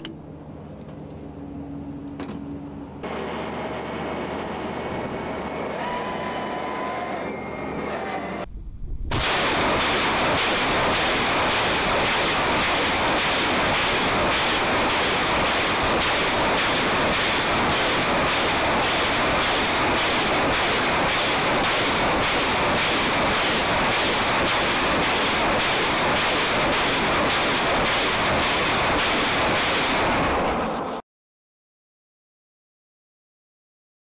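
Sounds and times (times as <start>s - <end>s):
rocket launcher firing salvo: 9.0s - 31.0s.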